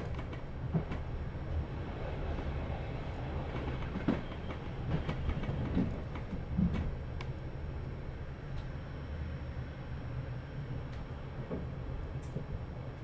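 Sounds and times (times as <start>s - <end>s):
train running gear rumble: 0.0s - 13.0s
wheels knocking on rail joints: 3.4s - 7.0s.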